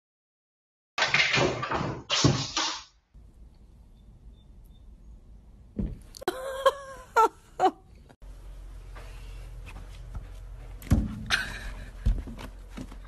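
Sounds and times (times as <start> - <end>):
steady low hum: 3.2 - 13.0.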